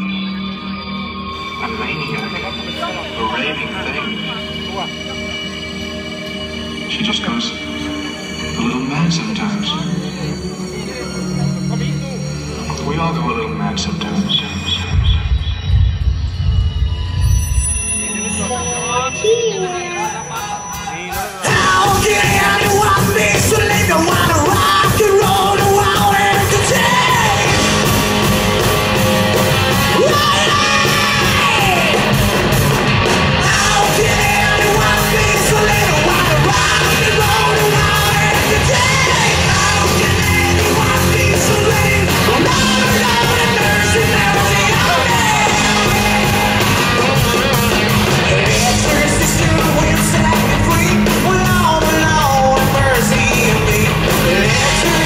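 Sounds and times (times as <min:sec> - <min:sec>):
hard rock band playing live: 0:00.0 - 0:55.0
person yelling and singing: 0:19.2 - 0:27.8, 0:29.9 - 0:32.2, 0:33.4 - 0:46.6.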